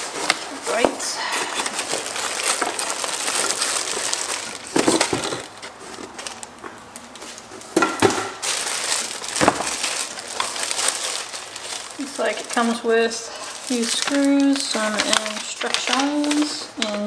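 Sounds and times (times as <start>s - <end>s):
cardboard box rustling: 0.0s - 6.6s, 8.4s - 12.8s
plastic bag crinkling: 0.0s - 17.0s.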